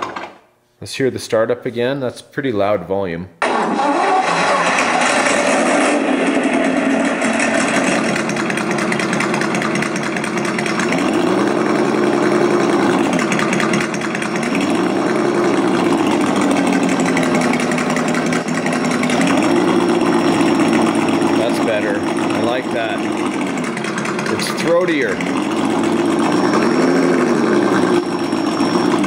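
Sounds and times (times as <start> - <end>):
synthesized truck engine revving: 3.4 - 29.0.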